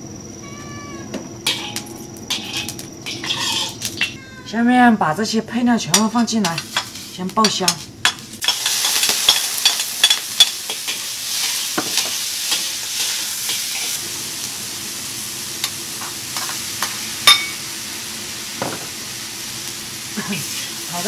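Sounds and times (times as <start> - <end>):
metal ladle scraping a wok: 1.4 - 4.2
sharp metal clank: 1.4 - 4.2
food sizzling in oil: 1.4 - 4.5, 5.9 - 21.0.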